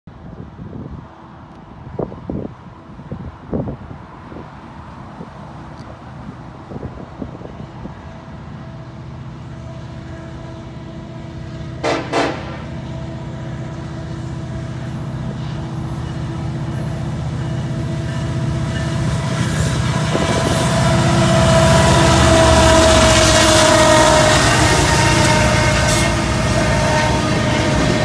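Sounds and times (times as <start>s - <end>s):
locomotive engines rumbling: 4.0s - 28.0s
train air horn blast: 9.5s - 15.6s, 18.0s - 28.0s.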